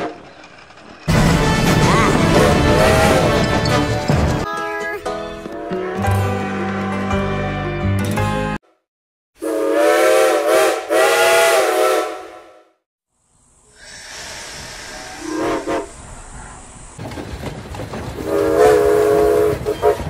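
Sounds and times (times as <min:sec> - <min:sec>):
steam whistle blasts: 0:09.4 - 0:12.7, 0:13.8 - 0:15.9, 0:18.2 - 0:20.0
steam hissing: 0:13.6 - 0:17.0.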